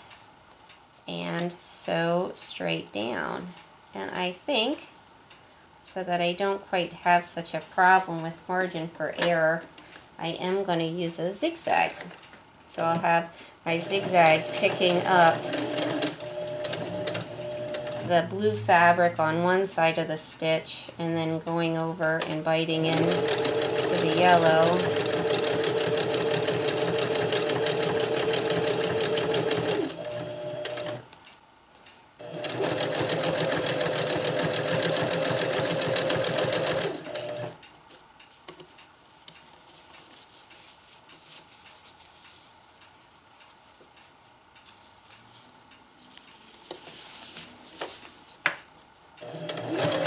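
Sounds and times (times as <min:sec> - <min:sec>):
sewing machine stitching: 0:13.7 - 0:18.6, 0:22.2 - 0:31.0, 0:32.2 - 0:37.6, 0:49.2 - 0:50.0.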